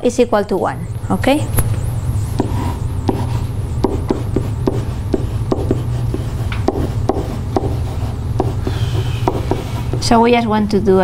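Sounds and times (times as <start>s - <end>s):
low hum: 0.0s - 11.0s
pen tapping and scratching on whiteboard: 2.4s - 10.2s.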